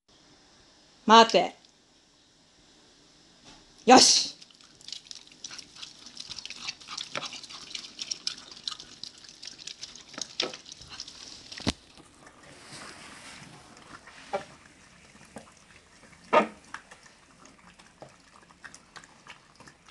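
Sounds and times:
dogs licking and chewing food: 4.3s - 19.9s.

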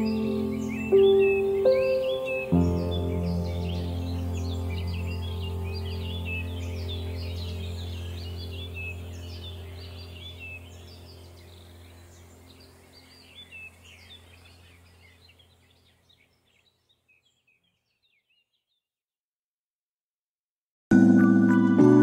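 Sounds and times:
low steady drone: 0.0s - 15.3s
small birds chirping: 0.0s - 18.9s.

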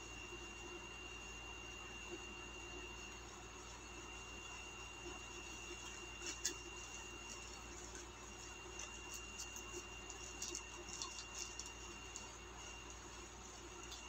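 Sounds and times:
plastic bag crinkling: 6.2s - 12.3s.

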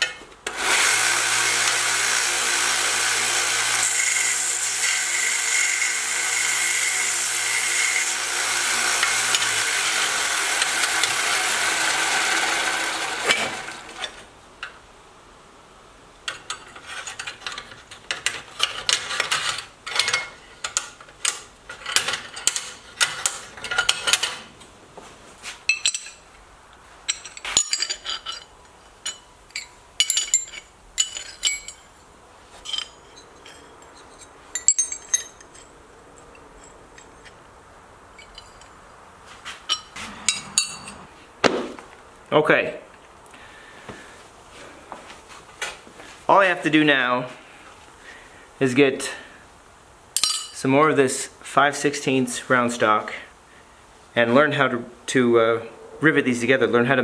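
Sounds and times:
belt sander grinding metal: 0.5s - 14.3s, 39.7s - 41.1s
metallic clicks and clinks: 27.1s - 31.9s, 32.6s - 37.4s.

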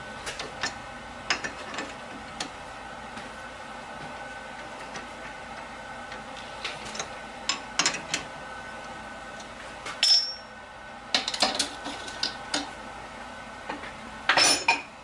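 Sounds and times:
ringing metal strike: 10.0s - 10.5s.

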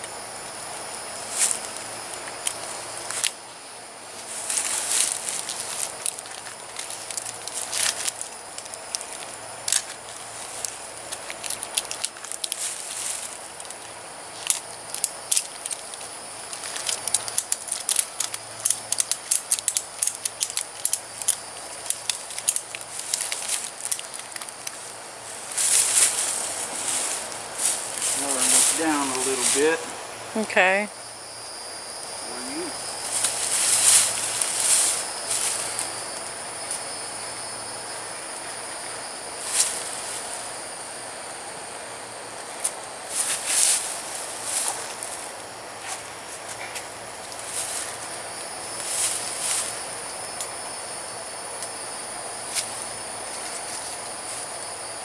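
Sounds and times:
hammock rustling: 0.0s - 30.0s, 32.7s - 36.9s, 39.3s - 41.1s, 42.6s - 50.2s
insects droning: 0.0s - 55.0s
strap clicking and scratching on bark: 0.5s - 3.4s, 4.2s - 29.9s, 32.9s - 36.8s, 42.6s - 50.6s.

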